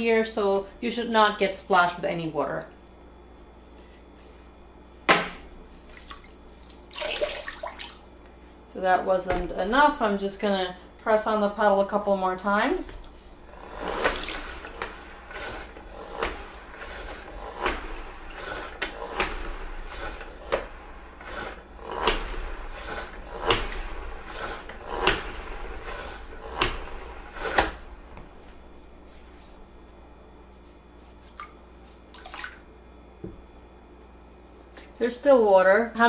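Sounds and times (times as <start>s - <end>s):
mop head spinning whirr: 8.7s - 30.1s.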